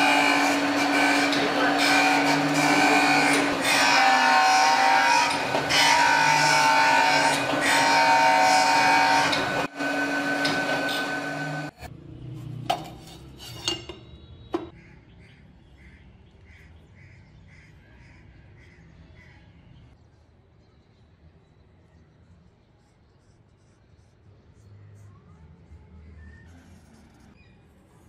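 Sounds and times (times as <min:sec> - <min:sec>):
grinding wheel on steel: 0:00.0 - 0:11.8.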